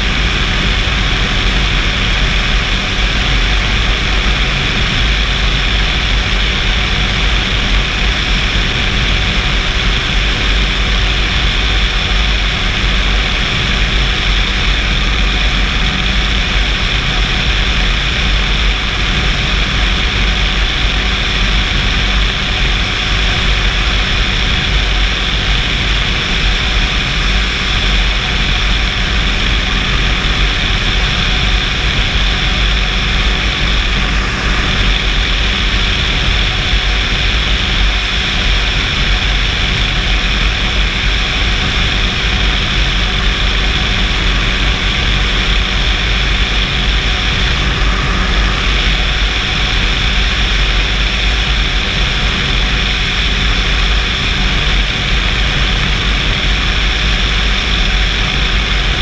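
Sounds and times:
aircraft engine and propeller drone: 0.0 - 59.0
wind rush: 0.0 - 59.0.

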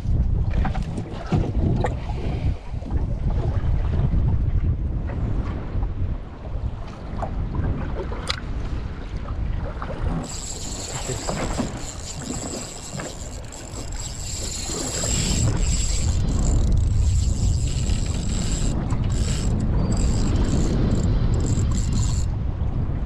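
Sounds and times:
wind rumbling on microphone: 0.0 - 23.0
fishing reel winding whir: 10.1 - 22.3.

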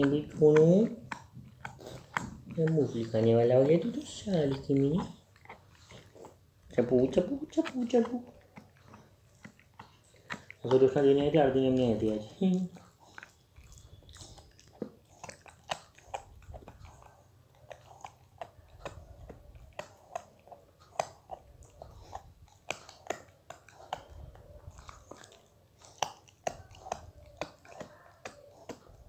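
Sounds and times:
puppy chewing and smacking: 0.0 - 29.0.

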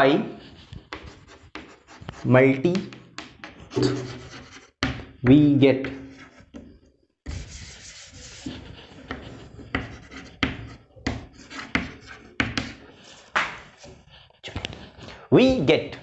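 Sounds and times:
chalk scratching on blackboard: 0.4 - 5.0, 5.8 - 6.7, 7.3 - 14.2.

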